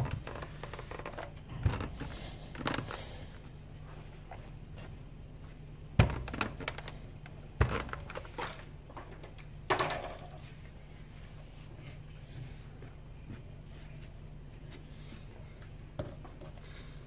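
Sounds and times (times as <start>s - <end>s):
dull knocks and thumps: 0.0s - 2.9s, 6.0s - 7.0s, 7.6s - 8.2s.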